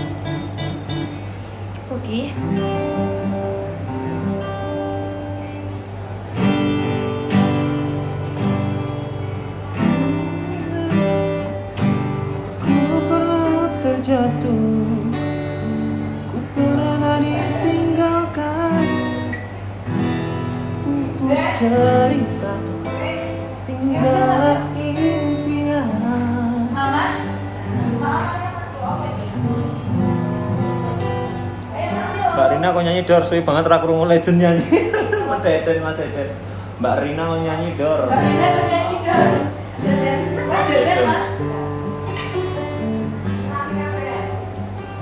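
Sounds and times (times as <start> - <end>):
acoustic guitar strumming: 0.0 - 45.0
person singing: 16.2 - 19.4, 20.8 - 27.0.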